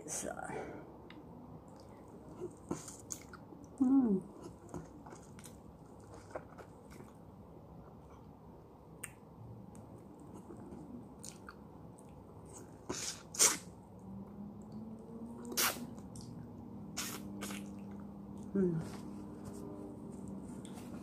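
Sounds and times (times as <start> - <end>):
mouth chewing and sucking lemon: 10.2 - 13.7, 15.4 - 18.5
sharp mouth sounds: 12.9 - 13.7, 15.4 - 16.3, 17.0 - 17.9.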